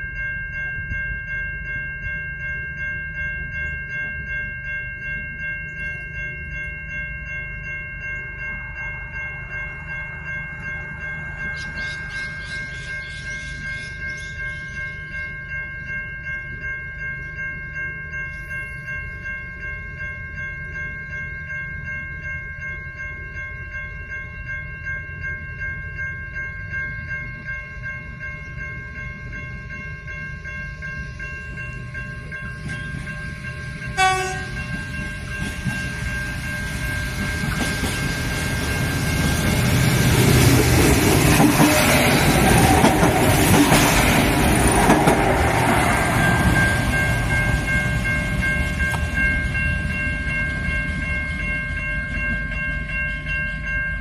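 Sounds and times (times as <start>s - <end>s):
wheels on rails: 0.0s - 54.0s
diesel train passing: 2.0s - 54.0s
train horn blast: 34.0s - 34.6s, 41.4s - 42.1s.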